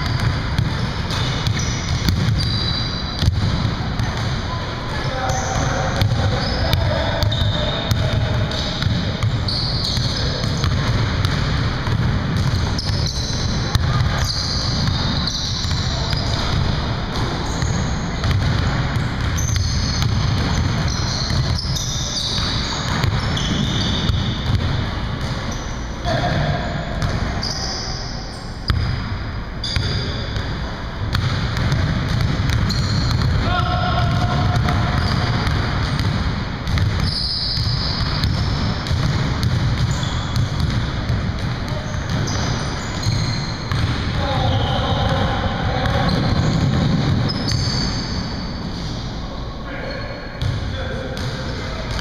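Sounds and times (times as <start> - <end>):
basketballs bouncing on wooden floor: 0.0 - 4.4, 5.0 - 27.3, 28.7 - 29.0, 29.6 - 48.0, 50.4 - 50.6
players' voices: 3.3 - 11.9, 25.9 - 27.9, 33.1 - 36.2, 41.0 - 47.4, 48.8 - 52.0.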